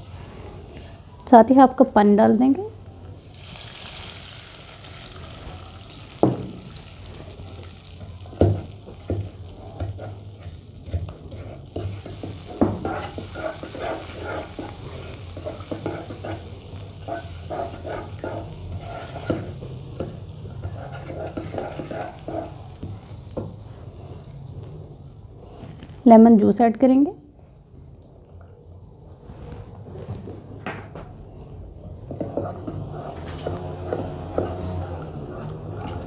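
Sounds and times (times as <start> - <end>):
light sizzle: 0.0 - 30.6
wooden spatula scraping wok: 7.0 - 25.8, 31.3 - 36.0.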